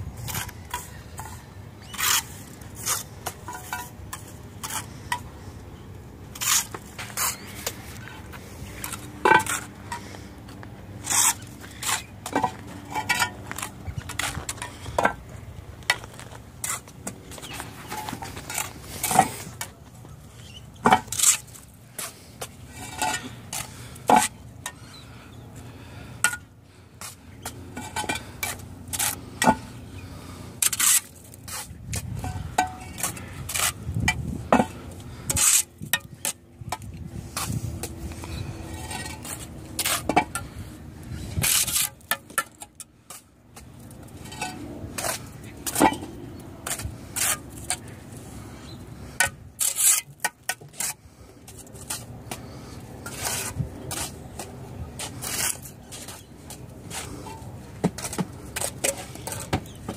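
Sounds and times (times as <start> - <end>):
trowel scraping mortar: 0.2 - 5.2, 6.3 - 10.2, 11.0 - 15.1, 20.4 - 25.0, 27.8 - 36.4, 37.3 - 42.8, 46.6 - 54.4, 55.0 - 59.8
trowel clinking on concrete blocks: 32.2 - 36.9.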